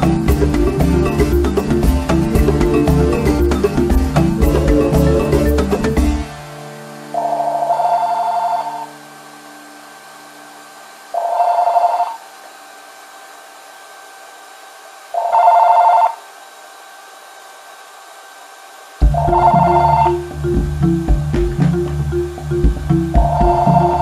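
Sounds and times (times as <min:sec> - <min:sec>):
cordless phone ringing: 0:07.2 - 0:09.0, 0:11.2 - 0:12.2, 0:15.2 - 0:16.2, 0:19.1 - 0:20.2.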